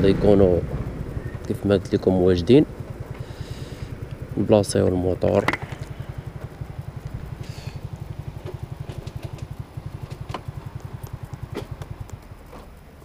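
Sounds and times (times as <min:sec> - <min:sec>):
scooter engine idling: 0:00.0 - 0:13.0.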